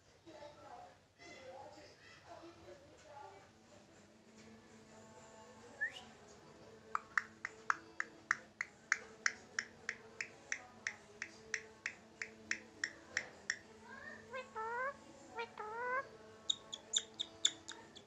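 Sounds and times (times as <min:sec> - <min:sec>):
parakeet clicking chirps: 0:07.0 - 0:13.7, 0:15.6 - 0:18.0.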